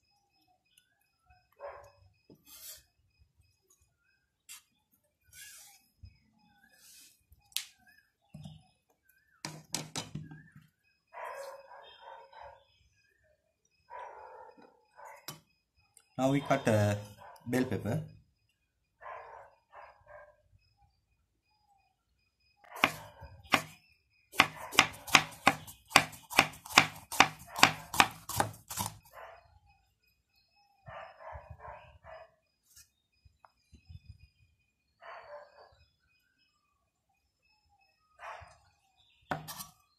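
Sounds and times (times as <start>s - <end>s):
knife scraping: 2.4s - 2.9s, 24.4s - 29.0s, 39.3s - 39.8s
knife knocking on wooden board: 39.3s - 39.6s.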